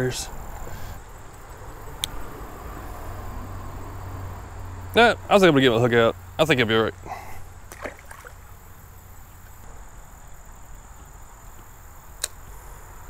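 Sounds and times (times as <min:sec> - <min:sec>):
high insect drone: 0:00.0 - 0:13.0.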